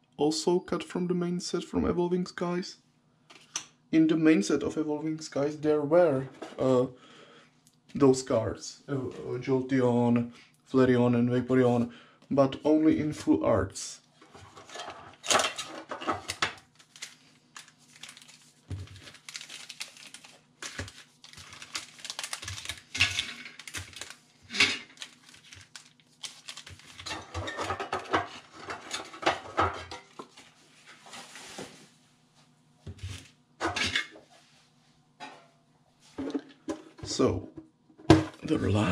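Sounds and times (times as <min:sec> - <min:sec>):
foil wrappers crinkling: 0:14.6 - 0:29.4.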